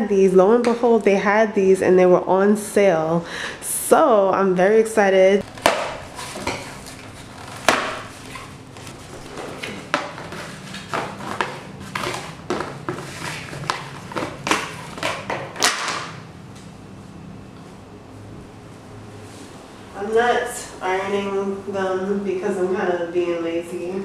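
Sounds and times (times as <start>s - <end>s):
packaging crinkling and rustling: 5.4s - 15.9s.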